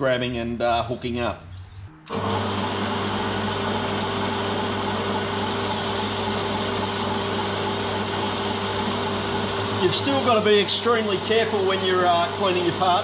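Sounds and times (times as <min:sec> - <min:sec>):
metal lathe motor humming: 0:02.1 - 0:13.0.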